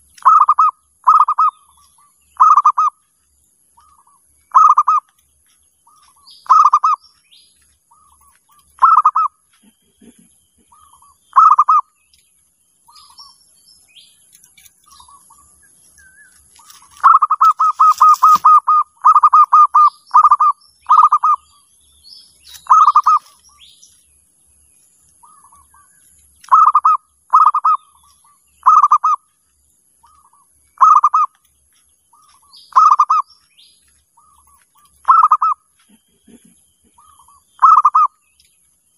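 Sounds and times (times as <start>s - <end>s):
faint high bird chirps: 0.0s - 38.9s
dove stuttering coos: 8.8s - 11.8s, 35.0s - 38.1s.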